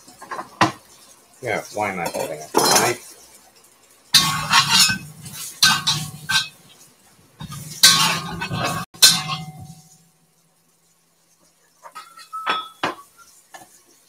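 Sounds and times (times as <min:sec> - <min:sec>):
beef sizzling in a wok: 0:00.0 - 0:14.0
wok spatula scraping a wok: 0:04.2 - 0:06.8, 0:07.4 - 0:10.0.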